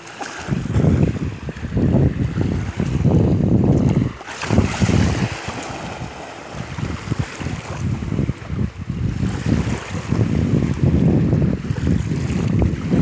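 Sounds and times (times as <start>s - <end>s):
dog paddling through water: 0.0s - 8.6s
wind buffeting microphone: 0.0s - 13.0s.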